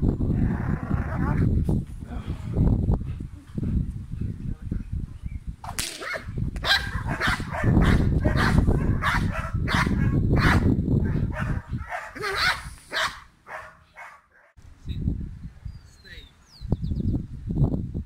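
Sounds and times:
dog barking: 6.0s - 14.6s.

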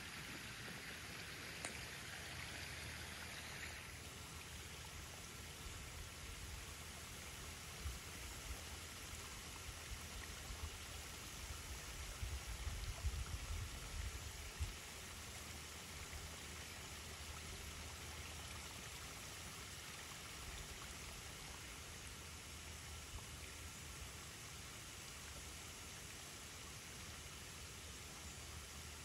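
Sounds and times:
running water hiss: 0.0s - 29.0s.

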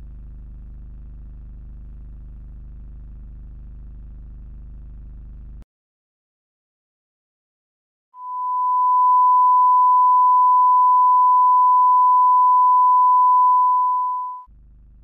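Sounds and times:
television test tone: 8.2s - 14.4s
low hum: 8.2s - 15.0s.

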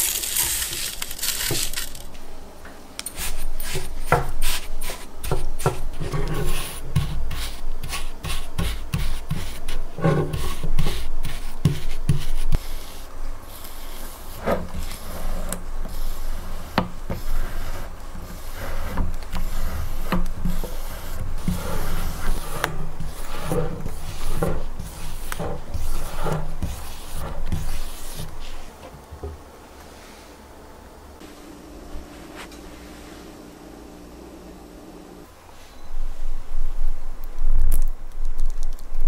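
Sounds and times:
spoon scraping biscuit crumbs: 3.1s - 28.8s.

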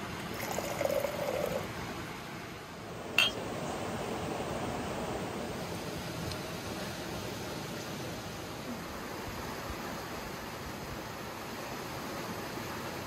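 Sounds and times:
forest stream rushing: 0.0s - 13.0s.

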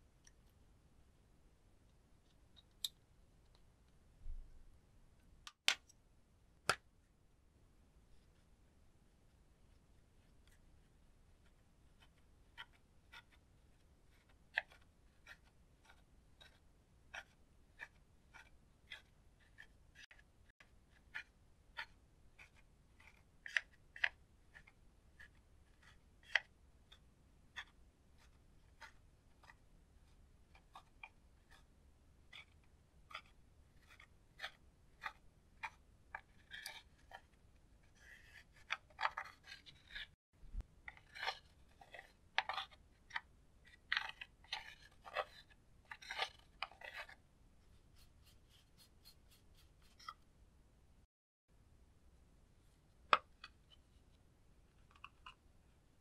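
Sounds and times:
spatula scraping pressed powder: 11.4s - 50.3s.

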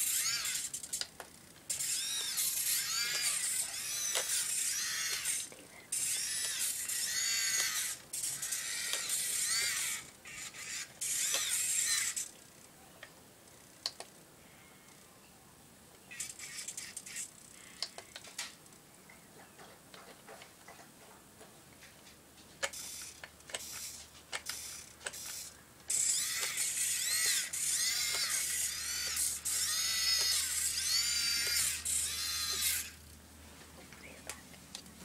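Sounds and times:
toy tractor electric drive whirring: 0.0s - 12.4s, 22.6s - 33.0s
small clicks: 0.0s - 14.2s, 15.9s - 18.8s, 22.6s - 33.0s.

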